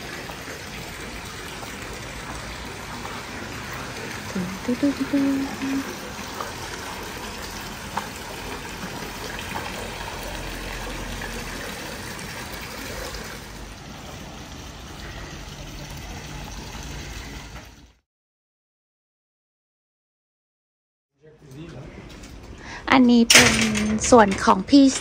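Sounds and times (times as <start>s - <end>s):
fountain water splashing: 0.0s - 17.8s.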